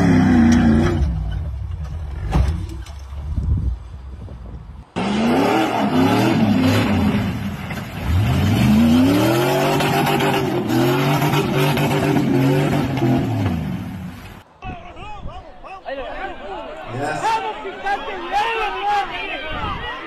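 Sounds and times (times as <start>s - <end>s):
engine revving hard: 5.0s - 7.4s, 8.0s - 13.7s.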